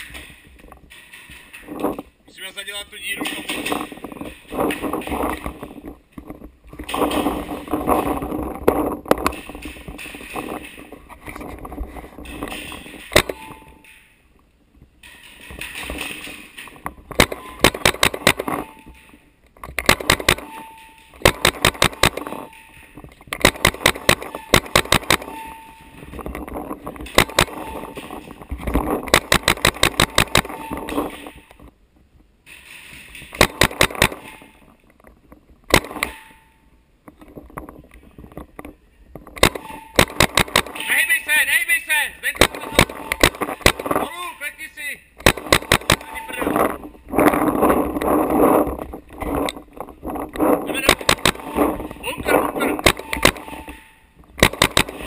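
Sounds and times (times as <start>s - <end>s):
paintball markers firing: 17.2s - 18.6s, 19.8s - 20.5s, 21.2s - 22.3s, 23.4s - 25.3s, 29.1s - 30.5s, 39.4s - 40.8s, 45.2s - 46.1s, 50.8s - 51.5s, 54.4s - 55.0s.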